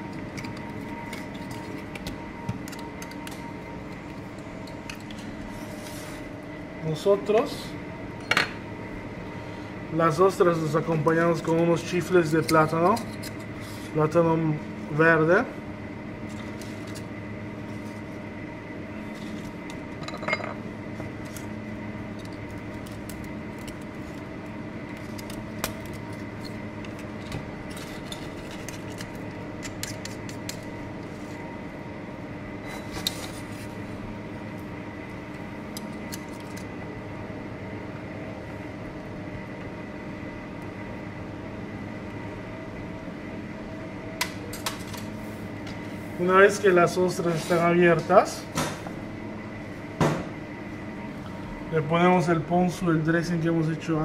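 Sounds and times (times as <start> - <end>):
kitchen equipment hum: 0.0 - 54.0.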